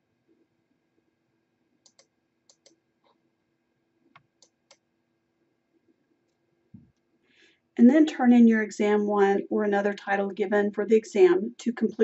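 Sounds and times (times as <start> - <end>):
faint mouse clicks: 1.8 - 3.2.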